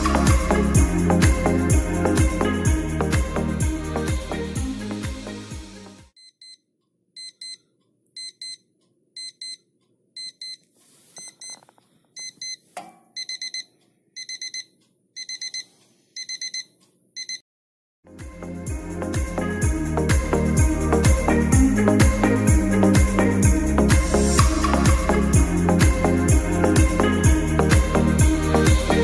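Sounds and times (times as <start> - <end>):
alarm clock beeping: 7.2 - 7.6, 8.2 - 8.6, 9.2 - 9.6, 13.2 - 17.4.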